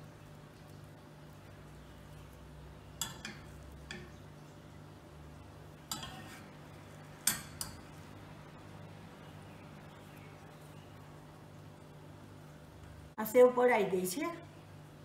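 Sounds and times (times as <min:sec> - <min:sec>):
metal utensils clinking on cookware: 0:03.0 - 0:04.1, 0:05.9 - 0:06.5, 0:07.2 - 0:07.9.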